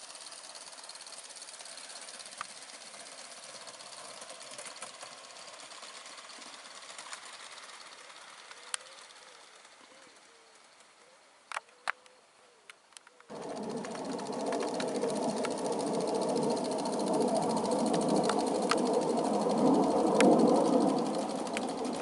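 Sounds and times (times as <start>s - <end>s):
model train rhythmic chatter: 0.0s - 11.4s, 13.3s - 22.0s
sharp clicks: 12.7s - 22.0s.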